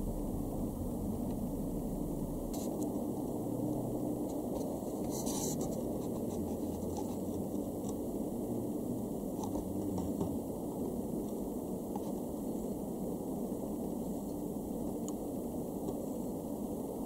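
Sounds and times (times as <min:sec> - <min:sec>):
low background rumble: 0:00.0 - 0:17.0
scratchy handling noise: 0:04.3 - 0:08.0.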